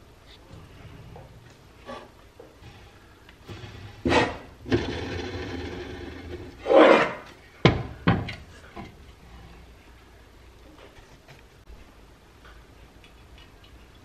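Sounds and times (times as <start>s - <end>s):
metal toy scraping: 2.6s - 6.9s.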